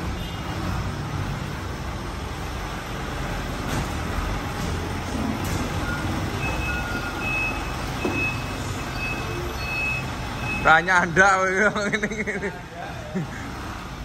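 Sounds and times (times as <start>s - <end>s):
reversing alarm beeping: 5.7s - 11.0s.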